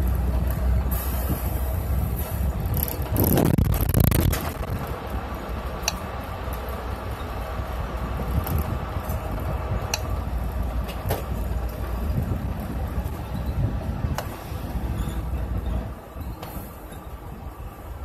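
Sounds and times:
bus engine and road rumble: 0.0s - 18.0s
sharp clicks: 5.8s - 6.0s.

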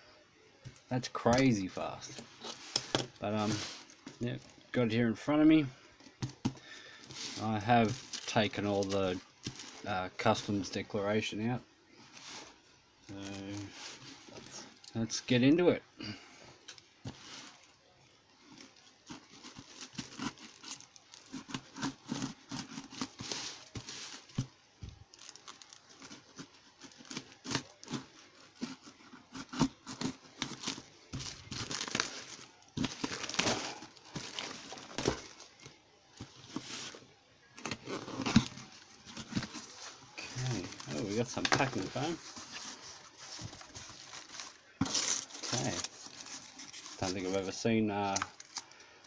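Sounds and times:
plastic wrap crinkling and tearing: 6.3s - 11.2s, 18.4s - 48.9s.

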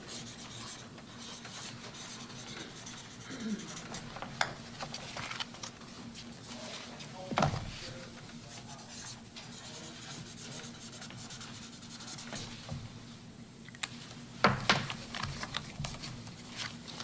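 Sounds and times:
pen scratching on paper: 0.0s - 4.0s, 8.6s - 12.6s.

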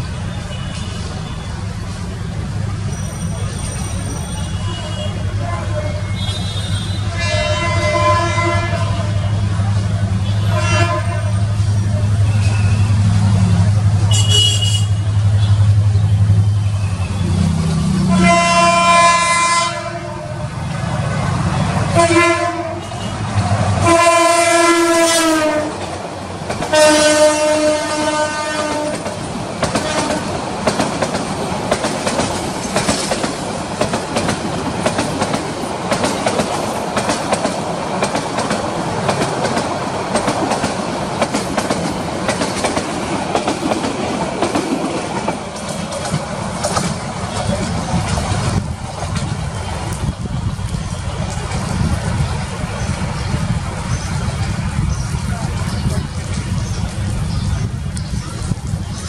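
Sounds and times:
train coaches rumbling past: 0.0s - 59.0s
diesel locomotive horn blasts: 4.1s - 9.6s, 10.2s - 13.0s, 14.0s - 15.6s, 18.0s - 20.7s, 21.9s - 25.8s, 26.7s - 29.1s, 29.8s - 30.3s
wheels clacking over rail joints: 17.2s - 59.0s.

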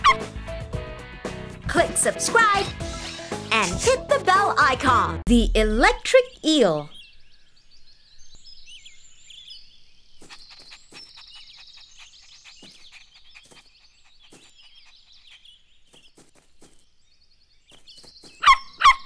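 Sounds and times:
birds chirping and trilling: 5.4s - 19.0s.

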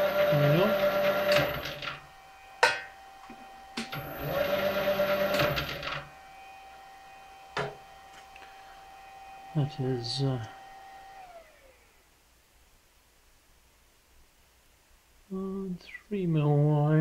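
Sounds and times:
lathe motor running: 0.0s - 9.7s.

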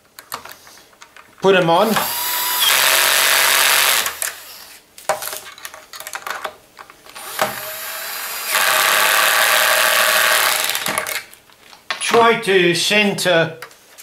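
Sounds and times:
cordless drill driving screws: 1.8s - 4.8s, 7.2s - 11.2s.

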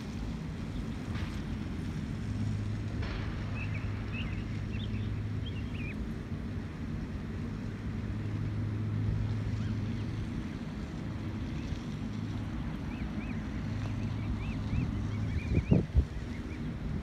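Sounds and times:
low hum: 0.0s - 17.0s
goslings peeping: 3.4s - 6.1s, 9.2s - 17.0s
wind on the microphone: 13.6s - 17.0s.

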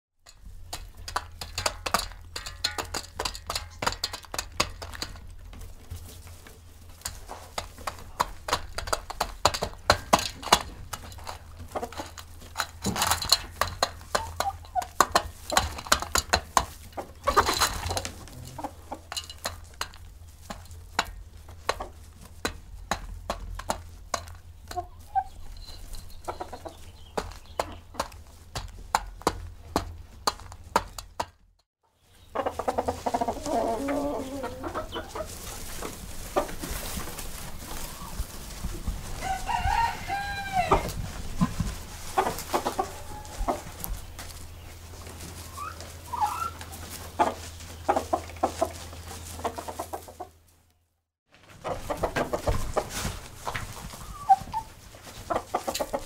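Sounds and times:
chickens pecking grain: 0.2s - 50.5s, 51.3s - 56.0s
hens clucking: 0.5s - 31.1s, 32.1s - 50.5s, 51.4s - 56.0s.

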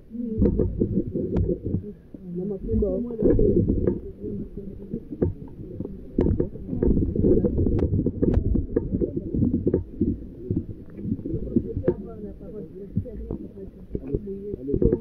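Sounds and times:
phone microphone handling noise: 5.0s - 12.2s.

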